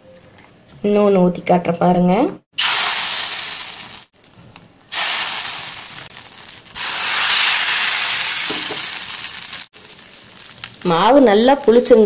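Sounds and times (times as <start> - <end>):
batter sizzling in a hot pan: 2.6 - 12.0.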